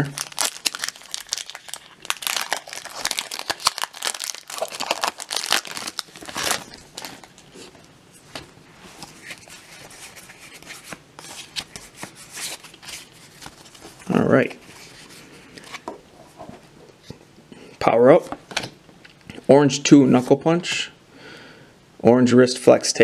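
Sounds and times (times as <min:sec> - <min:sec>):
foil wrapper crinkling and tearing: 0:00.0 - 0:07.5
cards rustling: 0:00.2 - 0:15.9.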